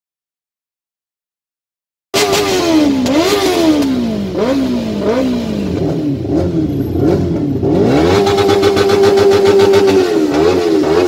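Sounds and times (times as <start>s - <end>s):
motorcycle engine revving: 2.2s - 11.0s.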